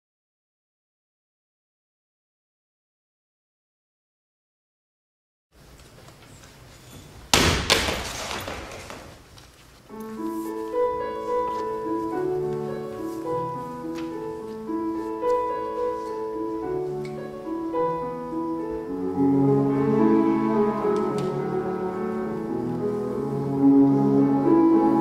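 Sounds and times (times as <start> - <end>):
slow piano music: 9.9 - 25.0.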